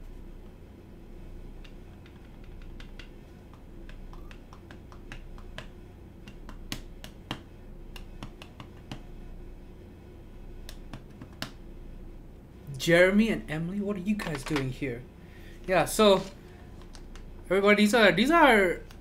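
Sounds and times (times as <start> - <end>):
steady low hum: 0.0 - 19.0
keyboard clicks and taps: 1.6 - 9.0, 10.7 - 11.6.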